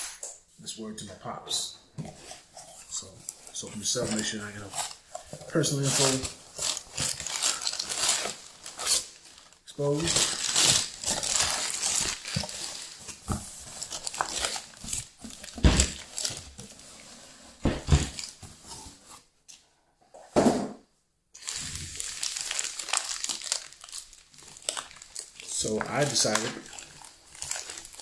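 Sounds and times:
paper crumpling and rustling: 2.2s - 17.2s, 21.4s - 28.0s.

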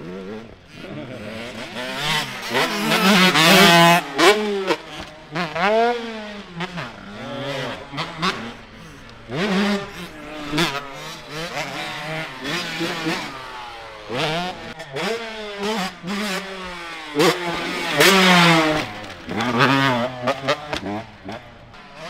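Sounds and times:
dirt bike engine revving: 0.0s - 22.0s.

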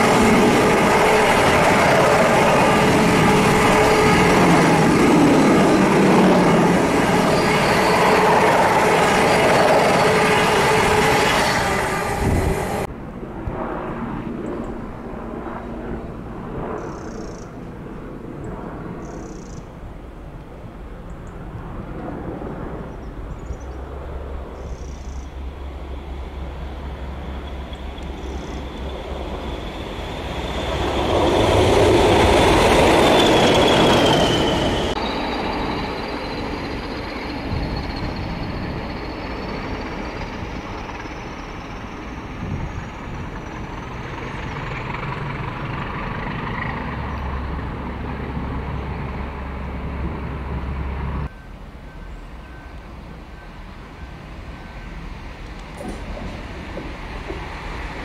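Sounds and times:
high whine rising in pitch: 0.0s - 12.9s, 24.6s - 44.3s
train passing: 0.0s - 58.0s.

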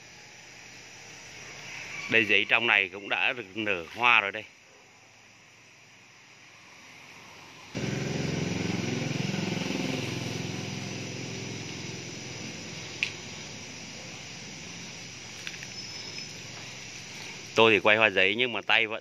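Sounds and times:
engine running: 7.5s - 17.6s.

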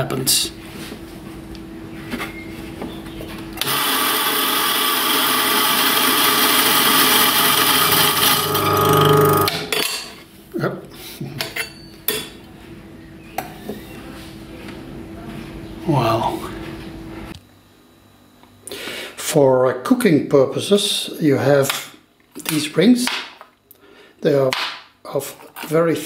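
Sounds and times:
coffee grinder grinding: 3.6s - 9.8s
steady hum: 5.8s - 10.1s.

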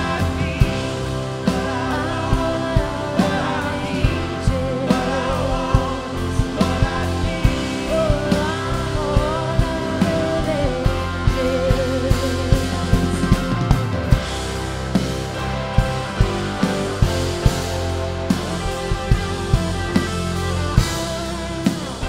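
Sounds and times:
rock band playing: 0.0s - 22.0s
steady drum beat: 0.0s - 22.0s
woman singing: 1.4s - 13.3s.

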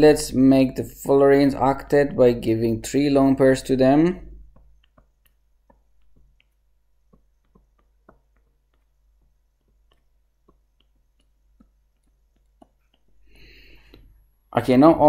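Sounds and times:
stylus tapping a touchscreen: 3.7s - 14.1s.

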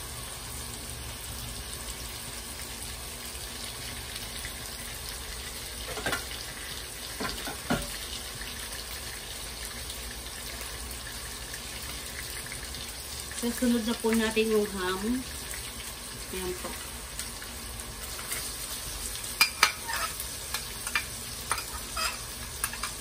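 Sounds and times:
hot dogs sizzling in oil: 0.0s - 23.0s.

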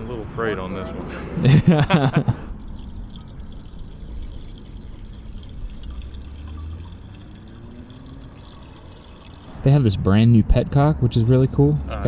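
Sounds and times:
liquid trickling through funnel: 2.2s - 9.7s.

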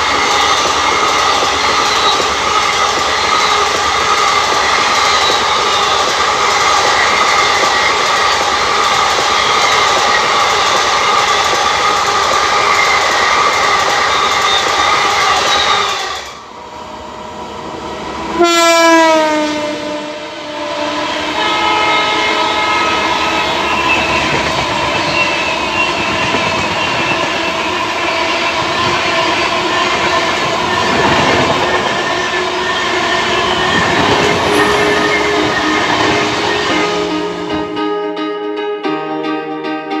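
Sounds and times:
train rushing past: 0.0s - 38.0s
locomotive horn blast: 18.3s - 26.2s.

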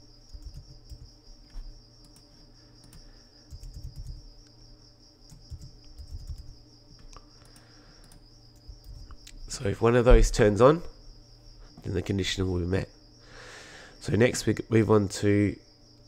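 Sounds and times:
keyboard typing: 0.3s - 4.3s, 5.3s - 6.5s, 7.4s - 9.2s.

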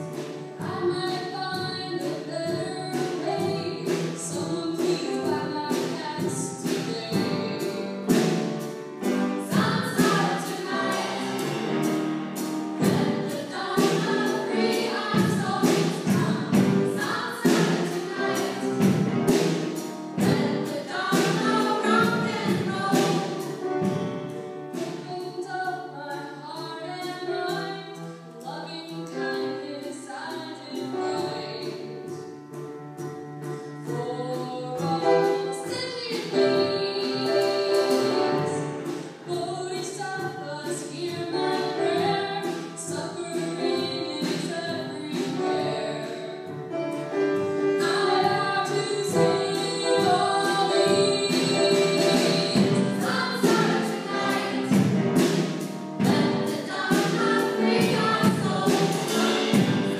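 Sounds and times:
choir singing: 9.5s - 12.1s, 12.8s - 19.0s, 20.2s - 23.4s, 47.9s - 59.9s.

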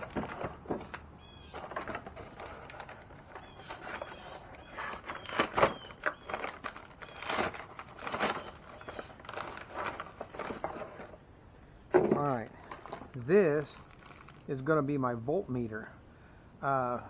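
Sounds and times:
packaging rustling: 0.0s - 11.2s, 11.9s - 14.6s
small parts clattering: 0.0s - 11.2s, 11.9s - 14.6s.

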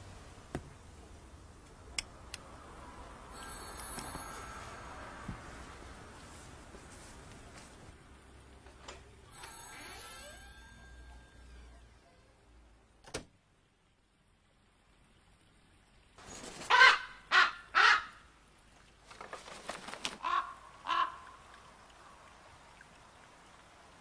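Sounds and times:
ravens calling harshly: 16.7s - 18.2s, 20.2s - 21.3s
rustling: 19.0s - 20.3s.

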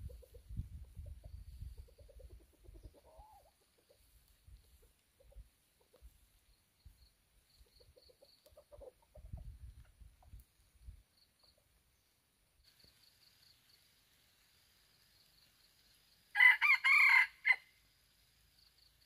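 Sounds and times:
junglefowl clucking softly: 0.0s - 6.4s, 7.6s - 10.4s.

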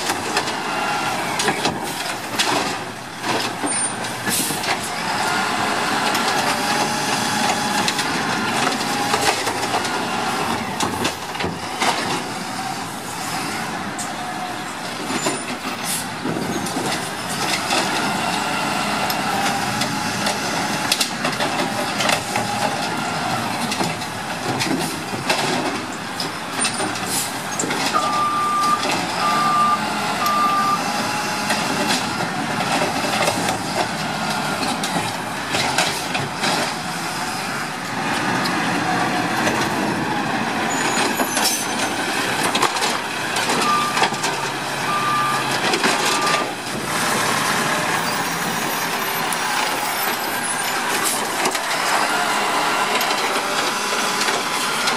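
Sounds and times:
garbage truck engine running: 0.0s - 54.9s
back-up alarm beeps: 28.0s - 30.8s, 46.1s - 46.6s.

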